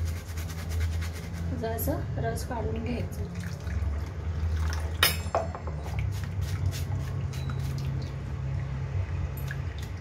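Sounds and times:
water dripping into metal bowl: 7.3s - 10.0s.

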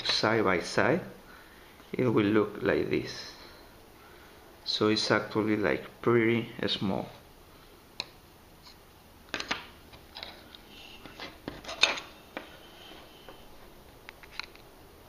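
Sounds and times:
circuit boards clicking and scraping: 9.4s - 12.5s.

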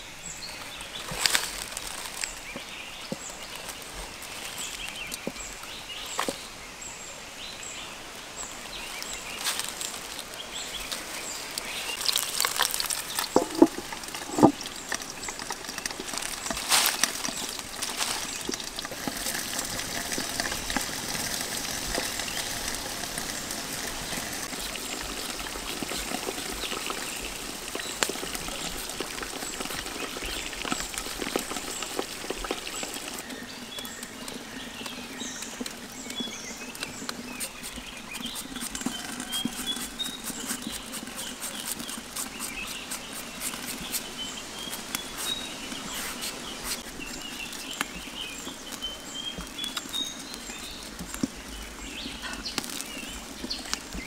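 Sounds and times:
bird chirping: 21.5s - 54.0s
knife scraping mango: 37.3s - 46.9s.

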